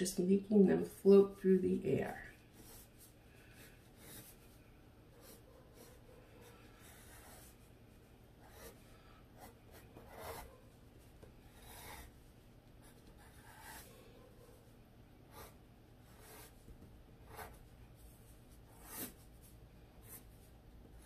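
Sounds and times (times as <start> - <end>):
pencil sketching on paper: 2.3 - 10.8, 11.4 - 12.2, 12.8 - 14.7, 15.3 - 16.6, 17.2 - 21.0.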